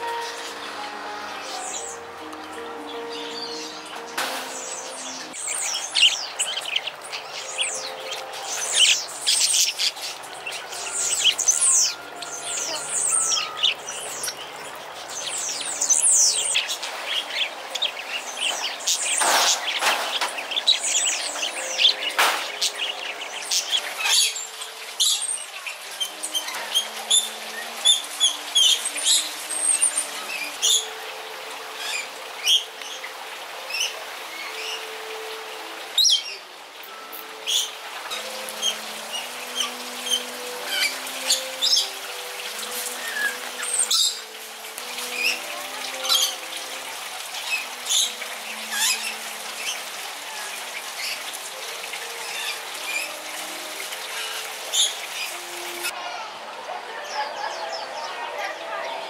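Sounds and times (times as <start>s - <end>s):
parakeets chirping: 2.8s - 30.9s.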